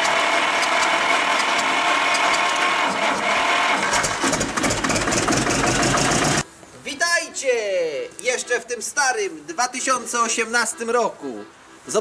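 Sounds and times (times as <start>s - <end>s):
diesel engine running with knocks: 0.0s - 6.4s
diesel engine starter whirring: 0.0s - 6.4s.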